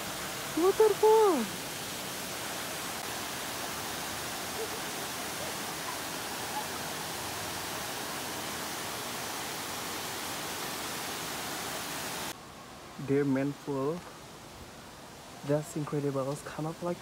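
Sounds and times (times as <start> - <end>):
waterfall rushing: 0.0 - 12.4.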